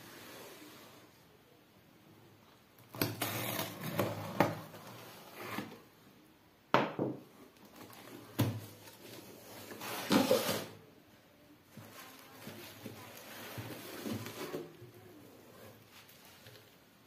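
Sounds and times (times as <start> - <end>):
bubble wrap rustling: 11.7 - 16.9.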